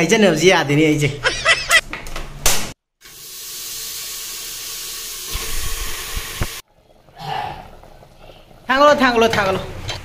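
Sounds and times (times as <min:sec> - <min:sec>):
meat sizzling in a pot: 0:03.0 - 0:10.0.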